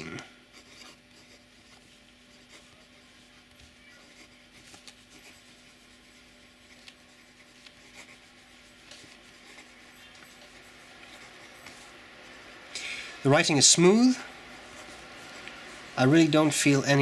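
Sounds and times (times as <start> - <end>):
steady low hum: 0.0 - 17.0
pen scratching on paper: 0.5 - 12.4.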